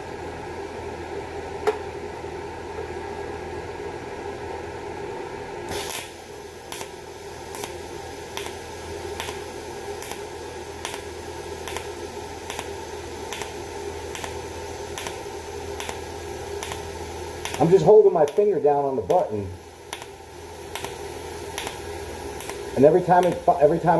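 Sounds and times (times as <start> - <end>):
welder hum: 5.7 - 23.9
welding arc zaps: 5.7 - 23.9.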